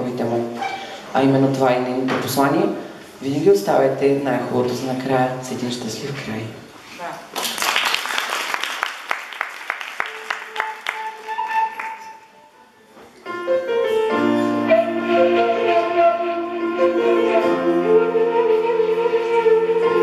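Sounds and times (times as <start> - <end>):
piano: 0.0 - 6.3, 9.7 - 20.0
applause: 7.3 - 12.3
flute: 10.0 - 12.6, 13.8 - 20.0.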